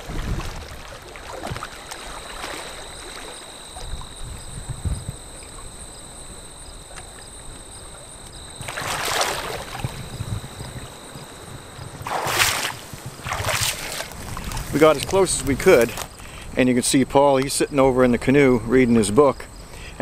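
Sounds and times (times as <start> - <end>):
feet splashing through shallow water: 0.0 - 4.4, 8.5 - 16.2
water lapping: 0.0 - 16.5
wind: 0.0 - 20.0.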